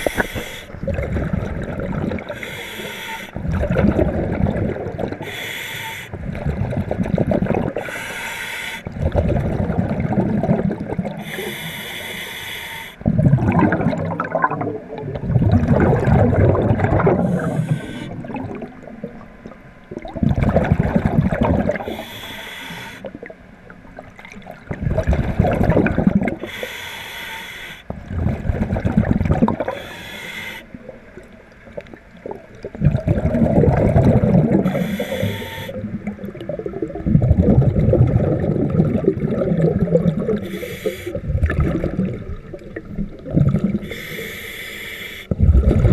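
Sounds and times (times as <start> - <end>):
scuba regulator inhalation hiss: 0.0 - 0.8, 2.3 - 3.4, 5.2 - 6.2, 7.8 - 8.9, 11.2 - 13.0, 17.2 - 18.3, 21.8 - 23.2, 26.4 - 27.9, 29.6 - 30.8, 34.6 - 35.9, 40.4 - 41.2, 43.8 - 45.4
exhaled bubbles rushing: 0.0 - 2.5, 3.4 - 5.3, 6.1 - 7.9, 8.9 - 11.4, 13.0 - 22.0, 24.1 - 26.4, 27.9 - 29.8, 30.7 - 43.9, 45.3 - 45.9.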